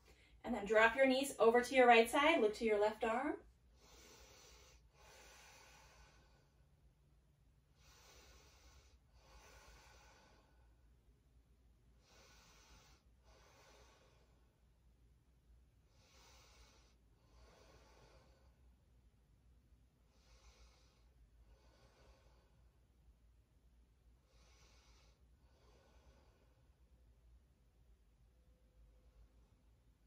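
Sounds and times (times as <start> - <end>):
person breathing slowly: 3.7 - 6.9, 7.7 - 10.9, 11.9 - 14.6, 15.9 - 18.8, 20.0 - 22.8, 24.2 - 26.8.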